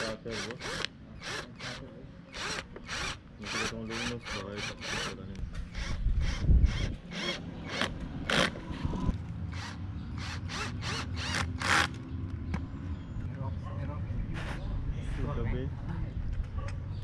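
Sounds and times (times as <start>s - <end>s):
cordless drill driving screws: 0.0s - 8.6s.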